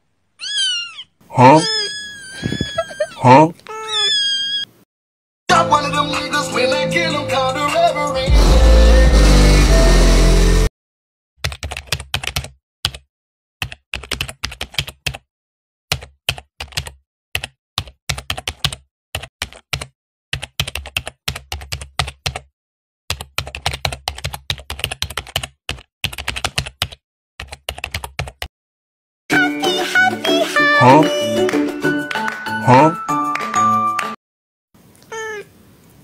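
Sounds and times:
music: 0:05.5 - 0:10.7, 0:29.3 - 0:34.2
keyboard typing: 0:11.4 - 0:13.0, 0:13.6 - 0:15.2, 0:15.9 - 0:22.5, 0:23.1 - 0:28.5.

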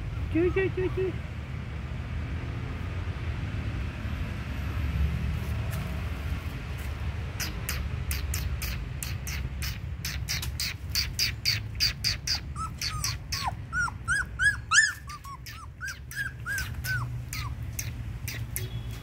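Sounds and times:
puppy whimpering: 0:12.1 - 0:18.5.

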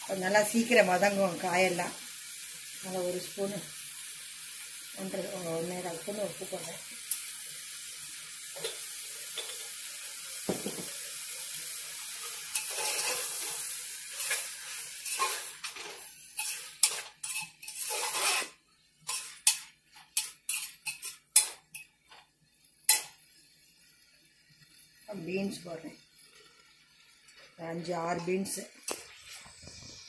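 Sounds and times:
vegetables sizzling in oil: 0:00.0 - 0:30.0
metal spoon scraping a pot: 0:12.5 - 0:13.5, 0:14.1 - 0:21.9.

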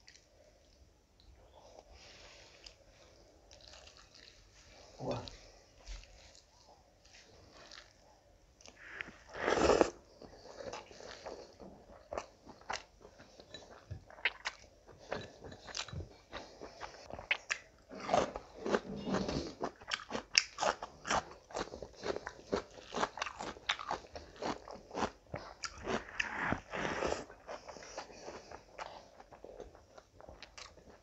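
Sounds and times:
chewing food: 0:00.0 - 0:31.0.

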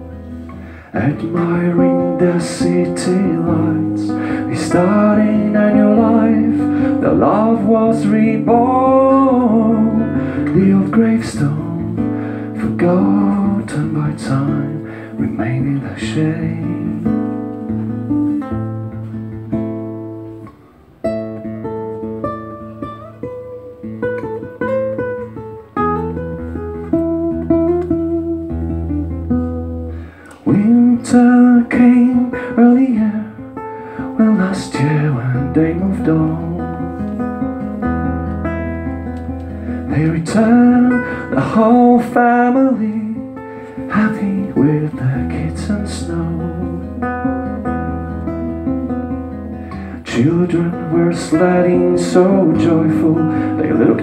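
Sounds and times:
acoustic guitar: 0:00.0 - 0:54.0
wordless singing voice: 0:00.7 - 0:17.4, 0:30.3 - 0:37.2, 0:39.7 - 0:47.1, 0:49.7 - 0:54.0.

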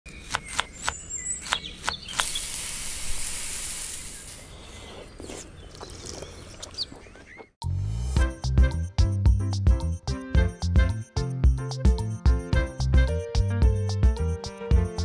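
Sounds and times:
loud hiss: 0:02.2 - 0:04.4.

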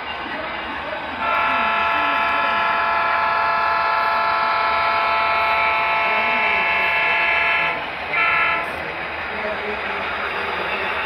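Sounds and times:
model locomotive horn blasts: 0:01.2 - 0:08.8.

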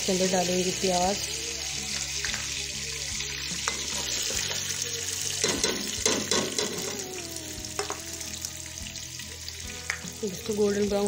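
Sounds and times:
onions sizzling in hot oil: 0:00.0 - 0:11.0
spoon clinking on metal pot: 0:05.4 - 0:07.0.

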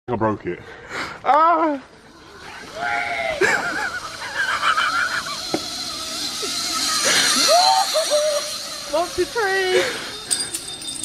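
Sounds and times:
people shrieking and laughing: 0:01.4 - 0:08.9
rising hiss: 0:02.0 - 0:10.4.

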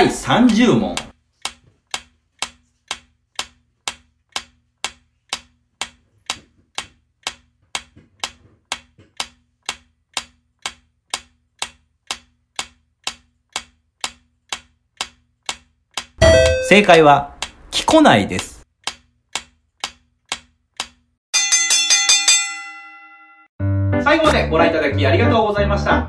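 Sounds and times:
timer ticking: 0:00.0 - 0:21.0.

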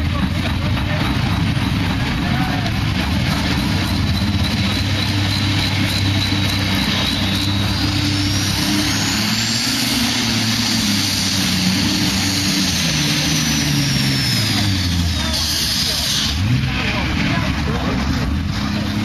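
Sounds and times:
tractor diesel engine running hard: 0:00.0 - 0:19.0.

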